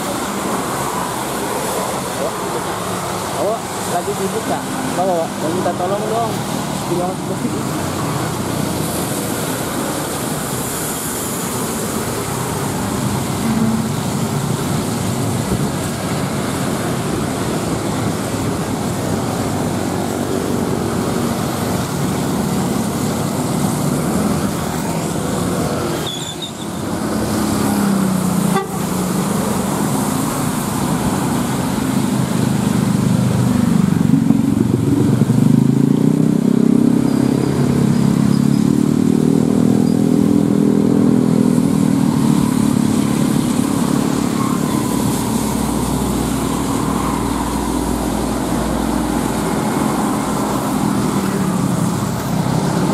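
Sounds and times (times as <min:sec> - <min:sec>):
tyre hiss on wet road: 0:00.0 - 0:36.5, 0:37.1 - 0:52.9
vehicles passing: 0:00.0 - 0:52.9
vehicle horn tooting: 0:28.5 - 0:28.9.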